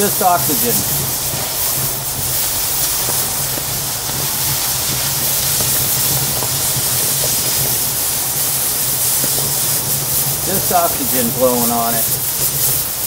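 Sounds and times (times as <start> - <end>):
cutting torch hissing: 0.0 - 13.0.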